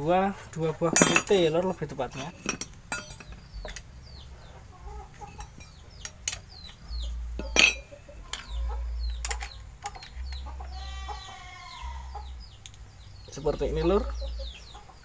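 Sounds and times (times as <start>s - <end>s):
metal wrenches clinking on metal: 0.4s - 3.9s, 5.2s - 10.4s
chickens clucking: 3.2s - 15.0s.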